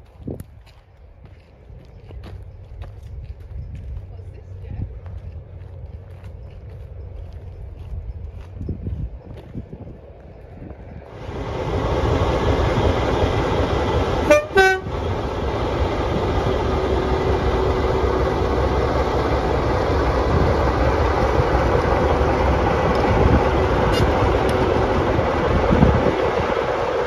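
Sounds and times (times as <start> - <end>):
diesel locomotive rumbling: 0.0 - 27.0
train horn toots: 14.2 - 15.0.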